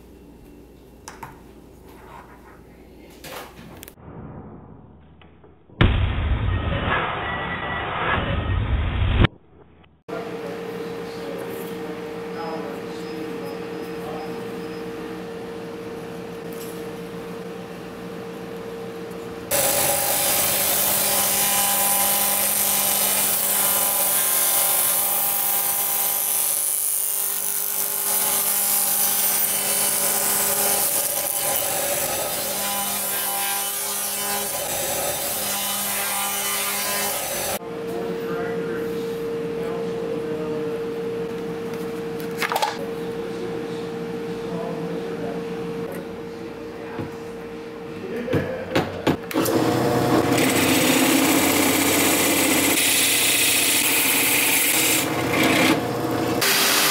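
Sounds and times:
table saw cutting wood: 19.5 - 37.6, 49.3 - 56.9.

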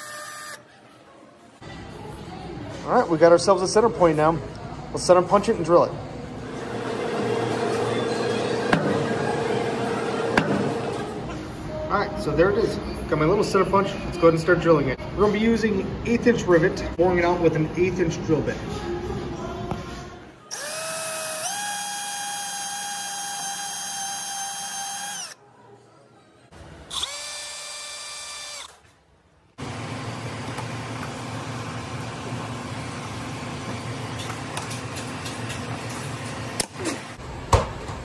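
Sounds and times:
electric drill whining: 0.0 - 0.6, 20.5 - 25.4, 26.9 - 28.8.

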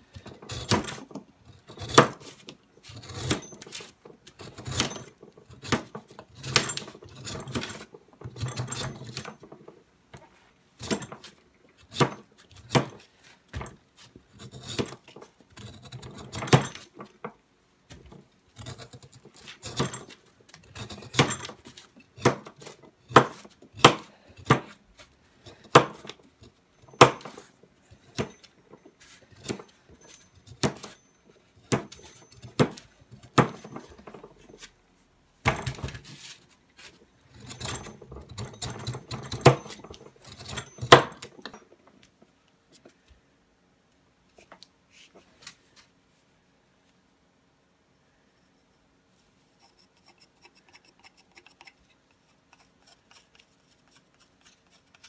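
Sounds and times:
knife shaving wood: 0.1 - 7.9, 49.6 - 55.0.

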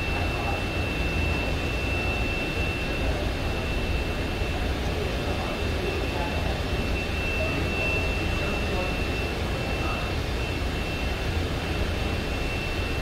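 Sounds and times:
high-pitched whine: 0.0 - 13.0.

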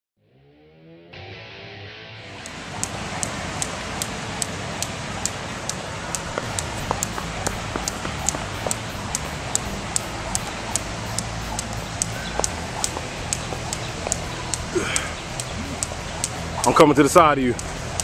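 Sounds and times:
steady background hiss: 2.4 - 18.0
jump rope slapping concrete: 2.7 - 16.8.

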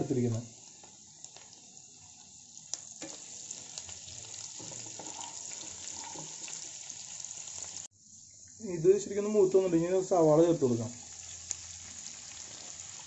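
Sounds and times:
vegetables sizzling in hot oil: 0.0 - 13.0
crackles from stirring: 0.5 - 8.6, 11.0 - 13.0.

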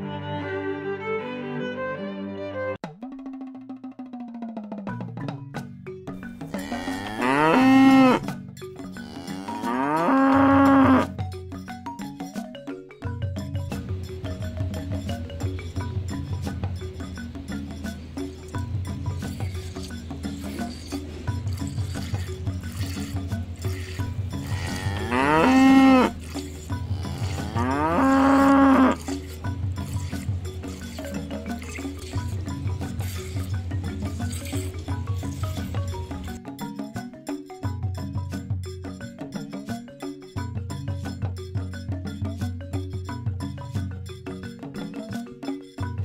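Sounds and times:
music with light percussion: 0.0 - 46.0
cow mooing: 6.5 - 8.2, 9.0 - 11.1, 23.7 - 29.1.

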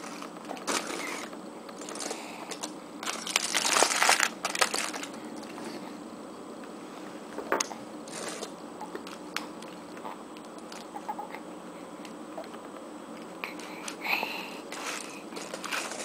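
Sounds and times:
aluminium foil crinkling: 0.0 - 5.2, 14.7 - 16.0.

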